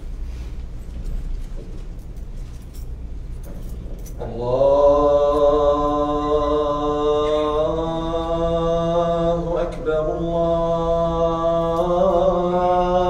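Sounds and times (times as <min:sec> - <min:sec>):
low room hum: 0:00.0 - 0:13.0
man chanting recitation: 0:04.2 - 0:13.0.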